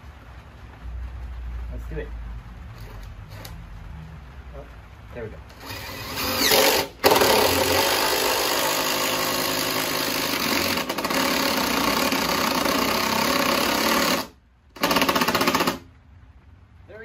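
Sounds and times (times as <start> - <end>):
cordless impact driver driving screw: 5.5 - 15.8.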